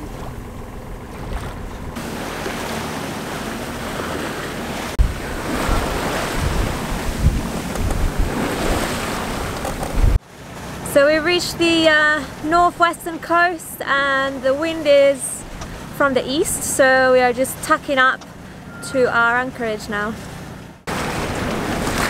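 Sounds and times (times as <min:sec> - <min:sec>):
wind buffeting microphone: 0:00.0 - 0:10.2
water rushing past hull: 0:00.0 - 0:22.0.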